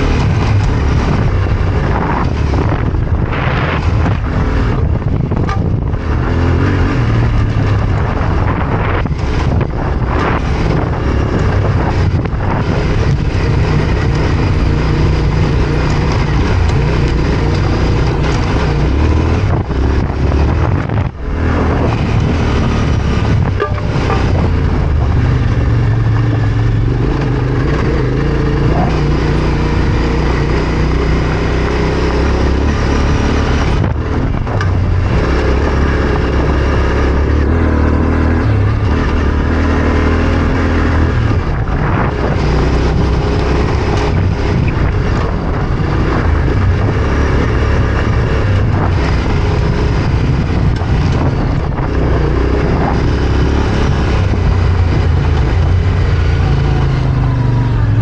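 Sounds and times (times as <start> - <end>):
motorcycle engine revving: 0.0 - 58.0
wind rush: 0.0 - 58.0.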